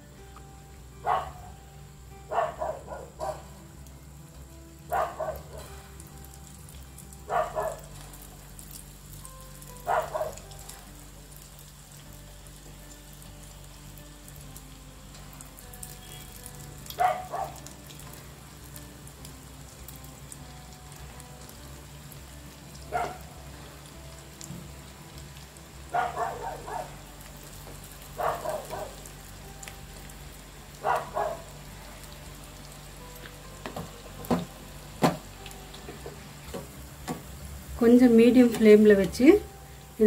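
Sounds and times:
batter sizzling in hot oil: 0:03.0 - 0:40.0.

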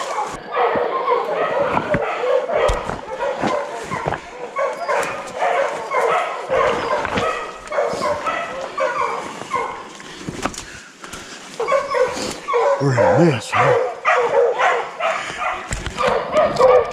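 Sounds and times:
brush crackling: 0:00.0 - 0:00.4, 0:01.5 - 0:13.0
hounds baying: 0:00.0 - 0:10.0, 0:11.5 - 0:16.9
footsteps on slope: 0:01.6 - 0:12.5.

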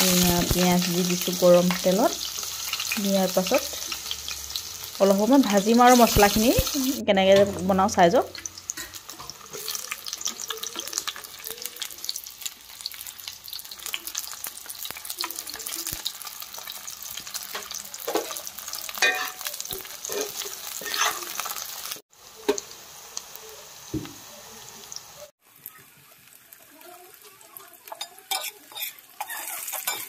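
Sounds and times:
vegetables sizzling in oil: 0:00.0 - 0:30.0
spatula scraping wok: 0:16.5 - 0:22.6, 0:27.8 - 0:30.0.

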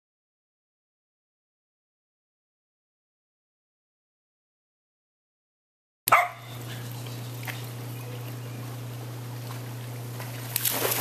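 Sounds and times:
steady low hum: 0:06.1 - 0:11.0
dog splashing into pool: 0:09.5 - 0:11.0.

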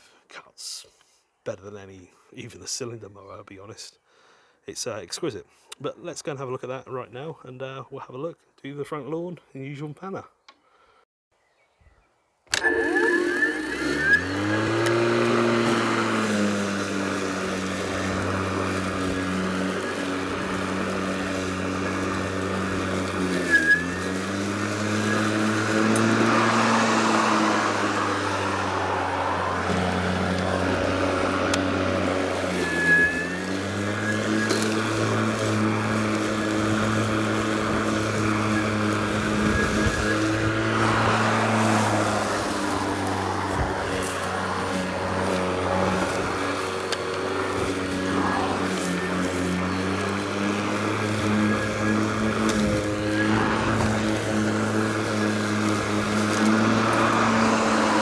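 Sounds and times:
cordless lawn mower running: 0:12.5 - 0:58.0.

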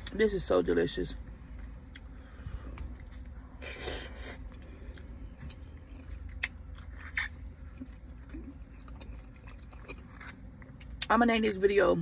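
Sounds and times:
low steady hum: 0:00.0 - 0:12.0
person chewing: 0:01.6 - 0:11.1.

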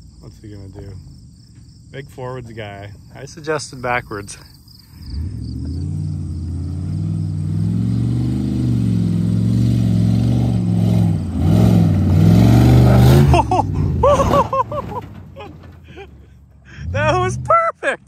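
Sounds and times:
pickup engine revving hard: 0:05.0 - 0:14.5.

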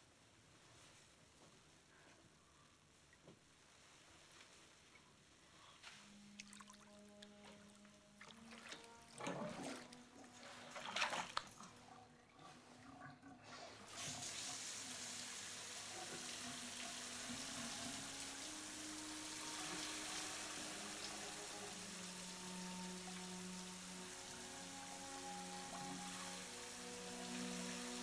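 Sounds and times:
running water hiss: 0:02.7 - 0:28.0
bathwater sloshing and splashing: 0:06.1 - 0:14.5.

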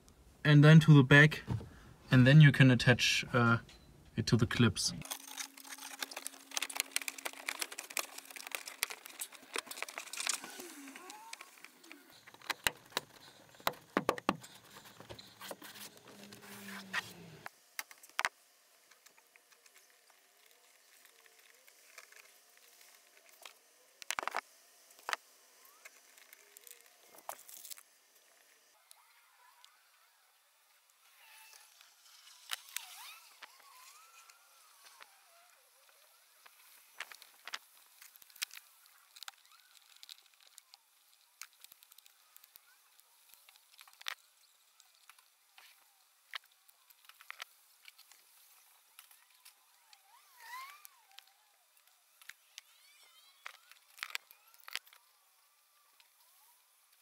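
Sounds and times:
hands clicking and rustling wire: 0:05.0 - 0:17.0.

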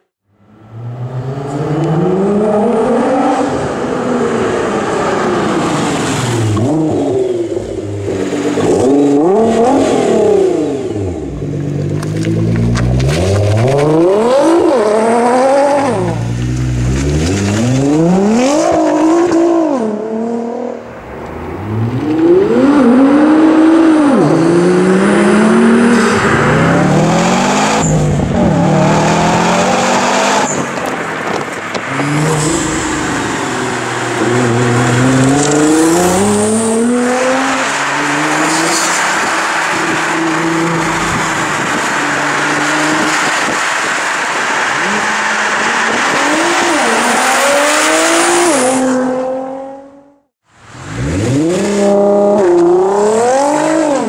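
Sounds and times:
car engine revving hard: 0:00.8 - 0:11.4, 0:21.6 - 0:54.0.

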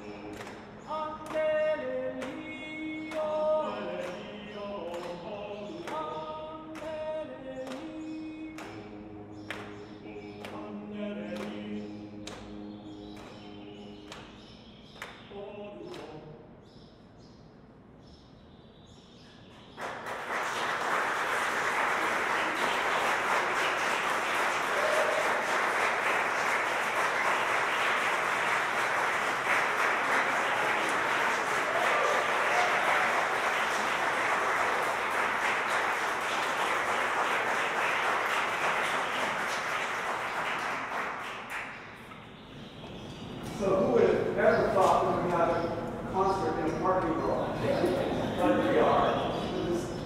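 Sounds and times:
audience applauding: 0:19.8 - 0:42.0.

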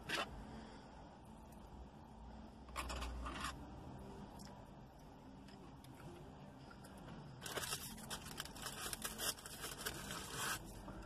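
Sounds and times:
food packaging crinkling: 0:07.4 - 0:10.6.

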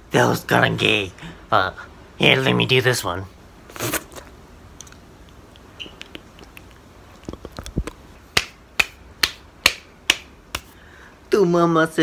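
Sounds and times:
fingers snapping: 0:04.8 - 0:10.7.

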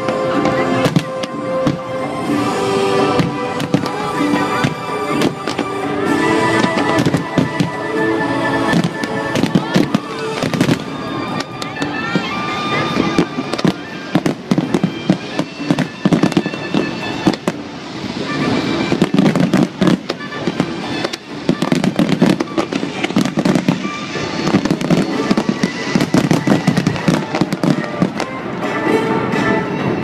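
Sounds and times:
fireworks bangs and crackles: 0:00.0 - 0:30.0.

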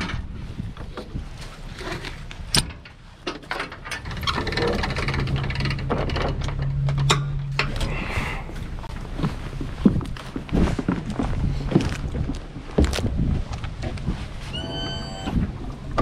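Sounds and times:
footsteps on gravel: 0:08.8 - 0:14.4.

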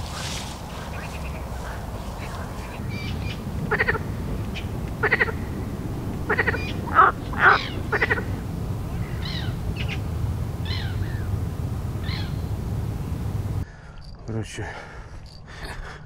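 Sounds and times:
birds chirping: 0:00.0 - 0:13.6
low background rumble: 0:00.0 - 0:13.7
frogs croaking: 0:00.0 - 0:14.3.

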